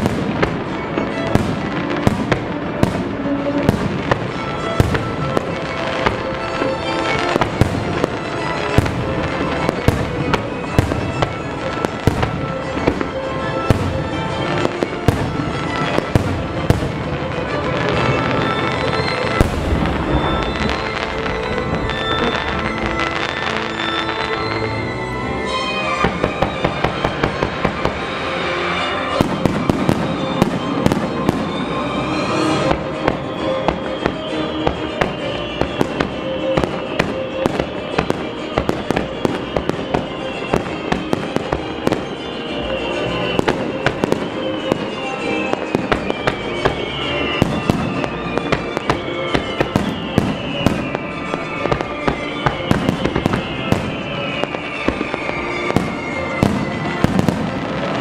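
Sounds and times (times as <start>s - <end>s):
fireworks bursting: 0.0s - 58.0s
fireworks crackle: 0.0s - 58.0s
music: 0.0s - 58.0s
downward sliding high tones: 17.3s - 58.0s.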